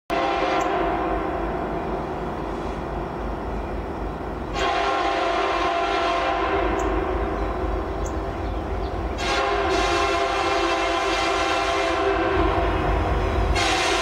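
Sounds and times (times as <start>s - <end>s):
locomotive air horn blasts: 0.1s - 1.6s, 4.5s - 7.4s, 9.2s - 14.0s.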